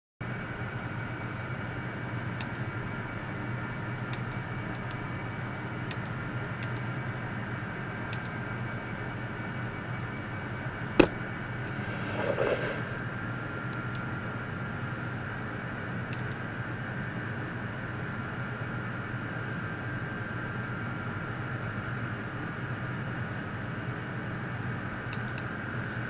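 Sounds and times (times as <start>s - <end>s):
computer fans whirring: 0.2s - 26.0s.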